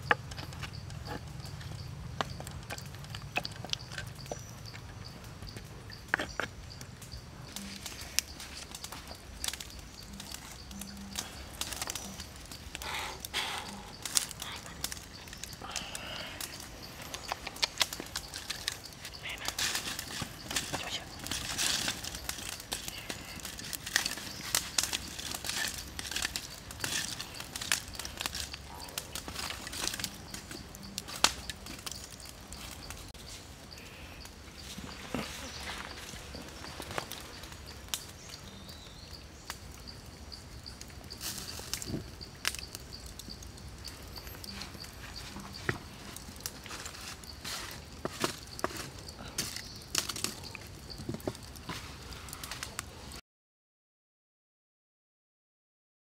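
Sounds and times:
charcoal fire crackling: 0.0 - 53.2
quiet outdoor background: 0.0 - 53.2
stick poking burning coals: 0.0 - 53.2
hands handling skewers: 7.5 - 33.1.

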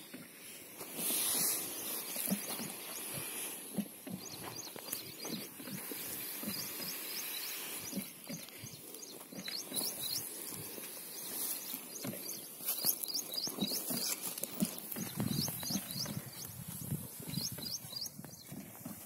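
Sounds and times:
footsteps on dry soil: 0.0 - 19.0
birds chirping: 0.9 - 19.0.

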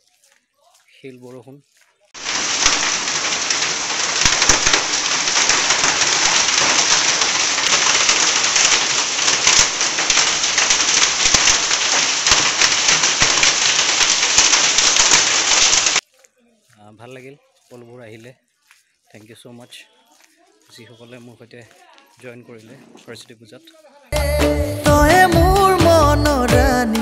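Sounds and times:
heavy rain on concrete: 2.1 - 16.0, 24.1 - 27.0
hailstones ticking: 2.2 - 16.0.

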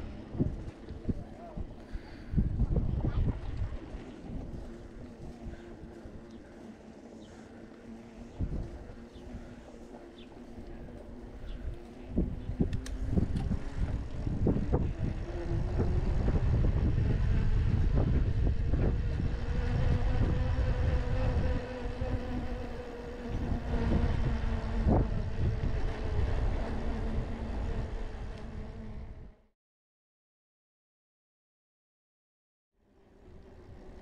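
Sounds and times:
bicycle tyres on pavement: 0.0 - 29.3, 32.9 - 34.0
wind rumbling on microphone: 0.0 - 29.5
bicycle clicks and rattles: 3.8 - 14.4.

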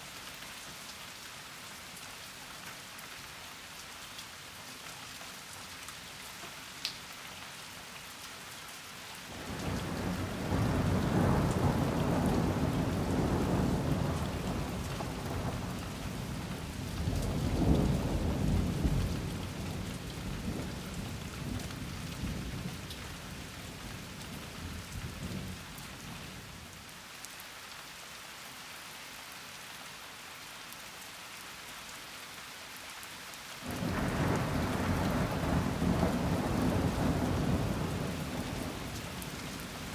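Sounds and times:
steady rain falling: 0.0 - 39.9
rolling thunder: 9.5 - 21.6, 33.7 - 38.8.

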